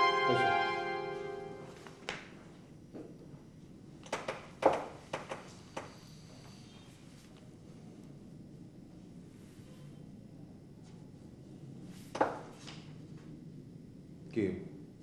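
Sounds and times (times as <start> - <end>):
background music: 0.0 - 2.0.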